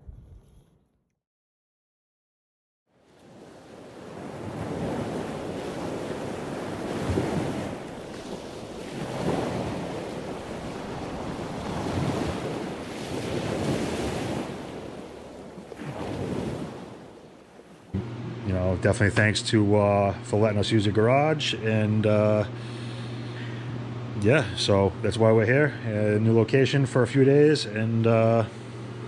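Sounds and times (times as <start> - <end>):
ocean surf: 2.9 - 18.5.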